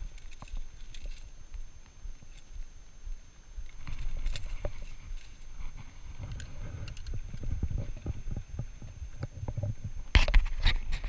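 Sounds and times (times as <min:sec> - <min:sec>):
footsteps on rocky ground: 0:00.0 - 0:10.9
camera handling rumble: 0:03.6 - 0:11.0.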